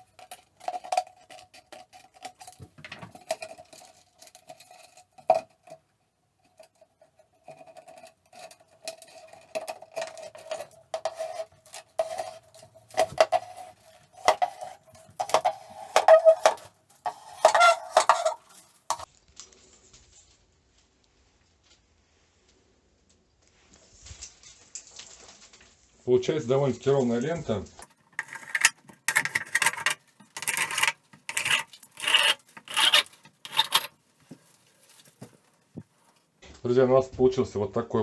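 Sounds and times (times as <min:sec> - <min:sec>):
plastic squeaking against blade: 0:07.6 - 0:19.1, 0:27.8 - 0:34.0
scissors cutting plastic bottle: 0:27.8 - 0:35.4.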